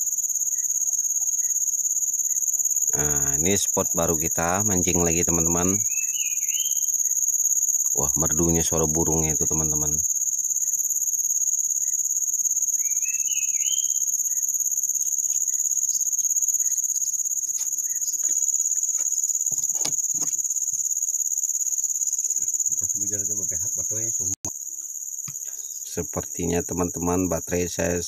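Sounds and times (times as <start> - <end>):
insects droning: 0.0 - 28.0
bird chirping: 5.6 - 7.2, 12.7 - 19.0.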